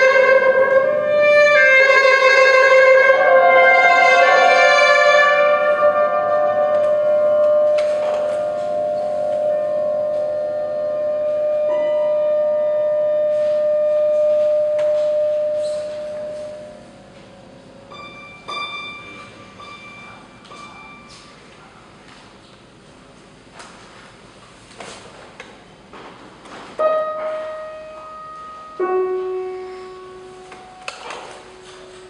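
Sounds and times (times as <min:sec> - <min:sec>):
tenor saxophone long note: 0:00.0 - 0:17.0
ringing bell-like piano tones: 0:03.0 - 0:21.5, 0:26.8 - 0:32.0
plucked piano strings: 0:17.8 - 0:21.2.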